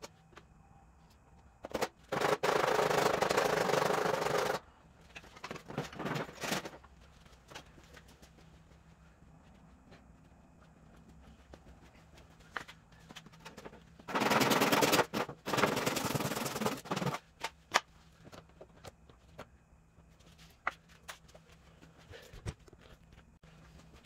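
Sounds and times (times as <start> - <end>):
power tool rattling: 2.1 - 4.6, 14.1 - 17.2.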